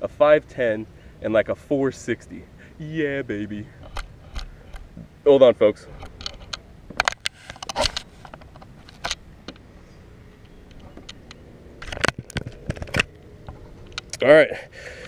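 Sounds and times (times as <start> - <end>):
camera handling clicks and knocks: 3.8 - 4.9, 6.0 - 9.6, 10.7 - 13.2.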